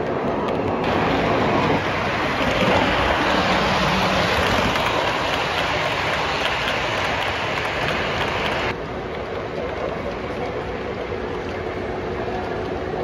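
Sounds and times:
model train wheels rushing on rail: 0.0s - 13.0s.

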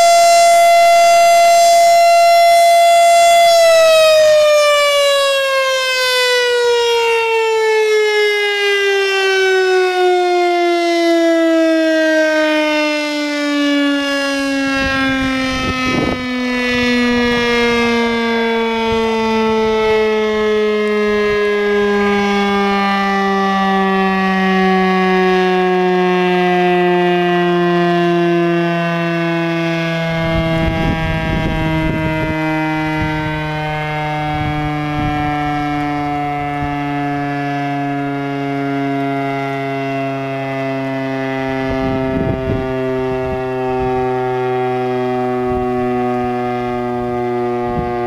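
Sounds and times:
fire siren wailing: 0.0s - 48.0s.

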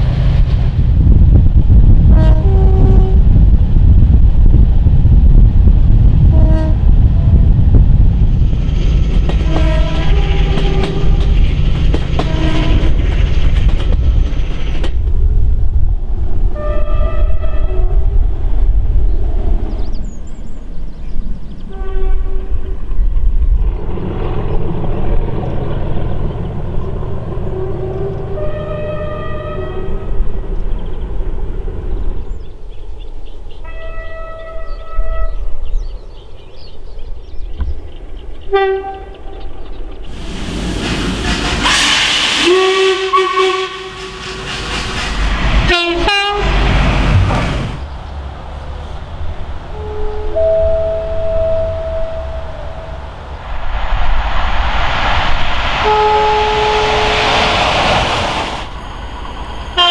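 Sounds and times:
train rumbling: 0.0s - 59.9s
train horn low note: 2.1s - 3.3s, 6.3s - 7.4s, 9.4s - 11.2s, 12.2s - 12.9s, 16.6s - 18.1s, 21.7s - 22.8s, 27.5s - 30.1s, 33.7s - 35.5s, 38.5s - 39.2s, 41.6s - 44.2s, 45.7s - 46.5s, 49.7s - 53.0s, 55.8s - 57.3s
hiss: 40.1s - 43.1s, 43.7s - 45.7s.

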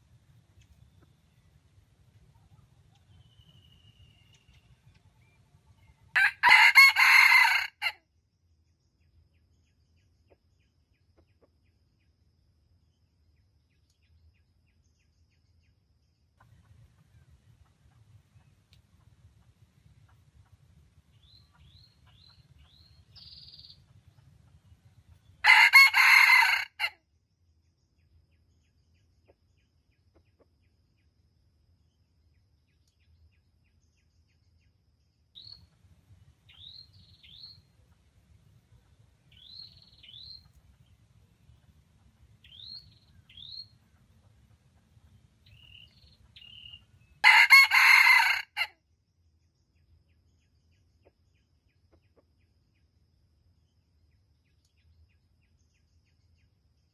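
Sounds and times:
small bird chirping: 0.3s - 6.2s, 16.4s - 25.4s, 35.4s - 47.3s
rooster crowing: 6.1s - 8.0s, 25.4s - 27.0s, 47.2s - 48.7s.

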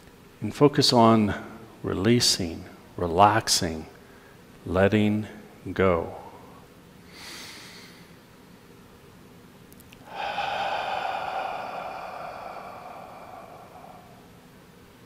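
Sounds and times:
man breathing deeply: 7.1s - 8.2s, 10.0s - 14.7s.

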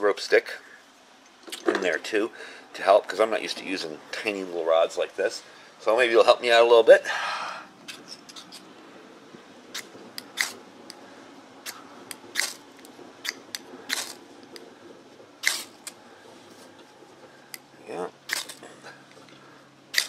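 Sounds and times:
metal striker scraping ferro rod: 7.9s - 8.7s, 9.7s - 10.6s, 11.6s - 14.6s, 15.4s - 16.0s.

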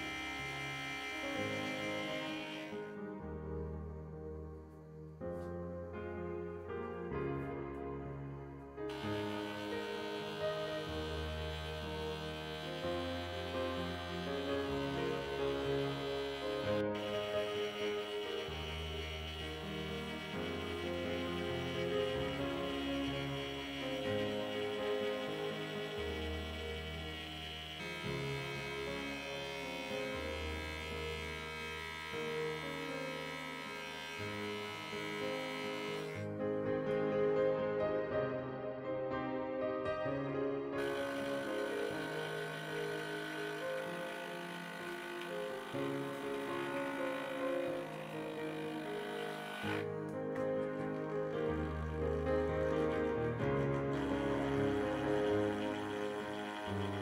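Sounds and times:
slow solo piano chords: 0.0s - 26.7s, 35.3s - 41.7s, 49.8s - 57.0s
slow background music: 0.0s - 57.0s.

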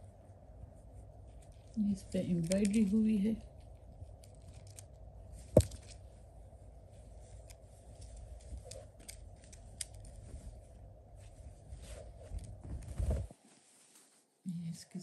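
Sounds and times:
fabric rustling: 5.2s - 14.4s.

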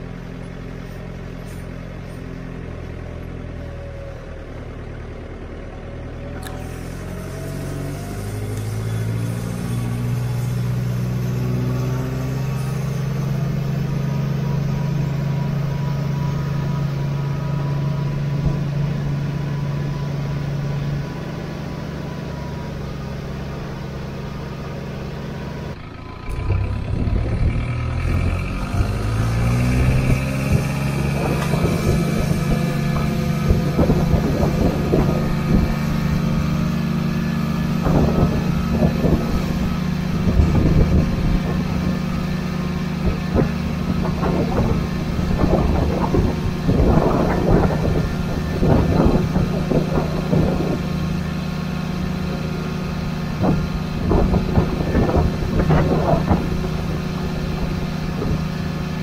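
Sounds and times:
tractor engine running: 0.0s - 59.0s
machinery rattling and knocking: 25.4s - 59.0s.

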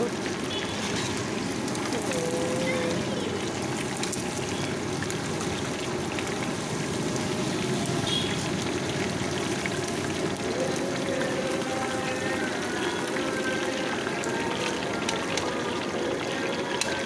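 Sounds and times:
chicken deep-frying in oil: 0.0s - 17.0s.

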